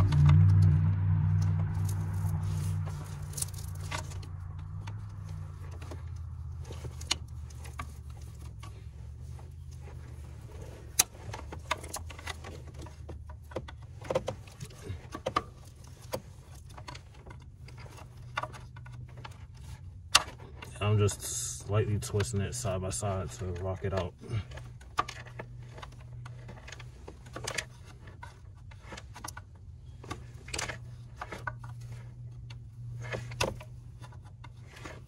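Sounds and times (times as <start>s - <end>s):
low rumble: 0.0s - 8.6s.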